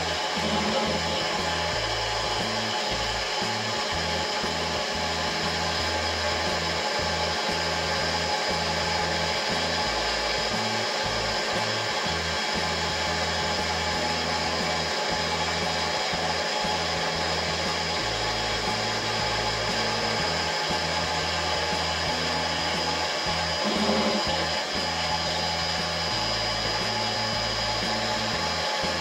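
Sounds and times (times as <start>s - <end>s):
lens edging machine motor whirring: 23.6s - 24.6s.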